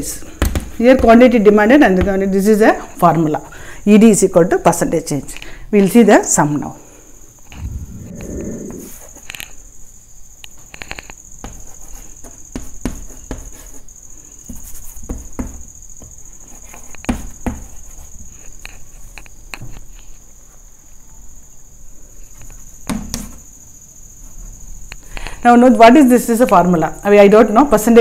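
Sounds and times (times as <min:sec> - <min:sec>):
steady high-pitched whine: 0:07.4 - 0:09.2
chalk tapping and scratching: 0:10.6 - 0:19.2.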